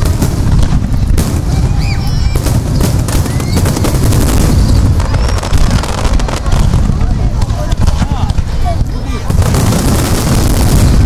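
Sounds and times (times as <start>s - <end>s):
fireworks whistles: 0.0s - 6.8s, 9.2s - 11.0s
fireworks booming and crackling: 0.0s - 11.0s.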